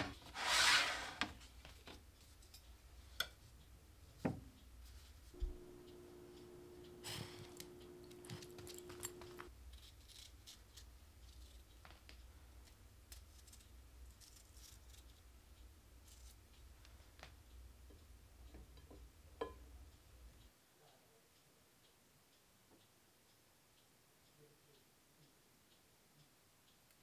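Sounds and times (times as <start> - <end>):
low hum: 5.4 - 9.5.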